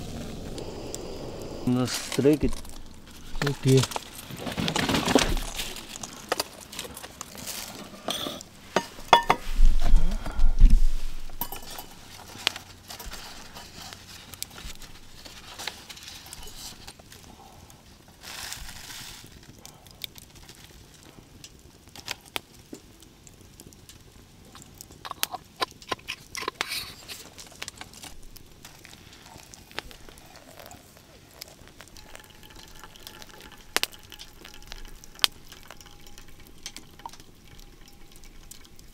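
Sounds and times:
hot water pouring from kettle: 0.0s - 7.9s, 24.6s - 38.9s
clicks and clinks of metal and glass: 11.4s - 12.1s, 32.0s - 38.7s.

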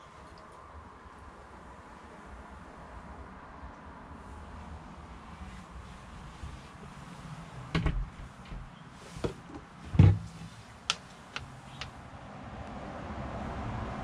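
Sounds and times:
refrigerator door knocks and clicks: 7.8s - 8.6s, 10.0s - 10.3s.

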